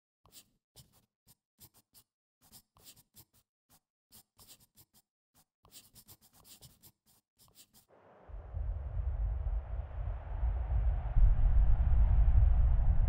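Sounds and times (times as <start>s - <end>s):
pen scratching while writing: 0.2s - 7.9s.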